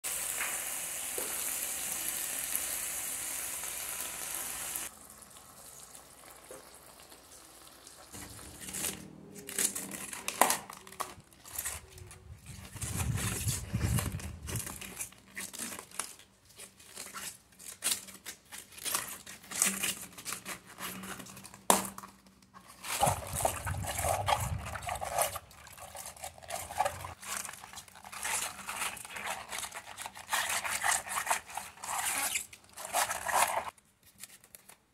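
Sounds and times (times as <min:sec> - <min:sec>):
cabbage sizzling in a pan: 0:00.1 - 0:08.4
leaves tearing and crackling: 0:08.2 - 0:16.2
leaves swished in water: 0:22.7 - 0:33.8.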